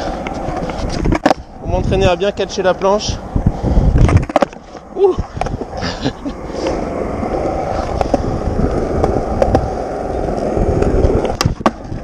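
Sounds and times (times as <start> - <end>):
skateboard wheels rumbling: 0.0 - 12.0
skateboard clacks: 0.1 - 1.5, 4.0 - 5.8, 6.6 - 12.0.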